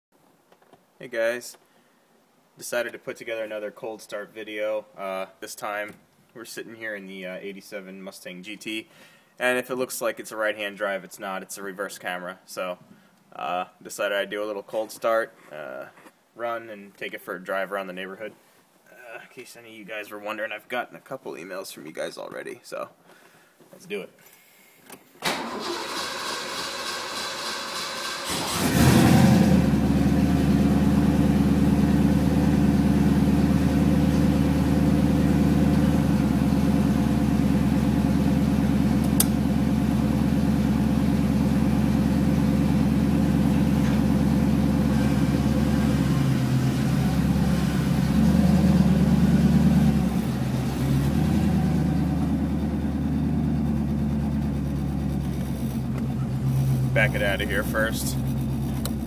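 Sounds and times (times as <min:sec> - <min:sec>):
car engine starting and idling: 0:25.2 - 0:59.0.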